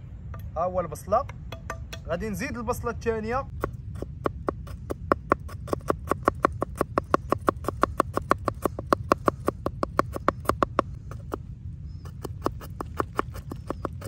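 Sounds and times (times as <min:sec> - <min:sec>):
knife chopping onion: 0:03.5 - 0:14.0.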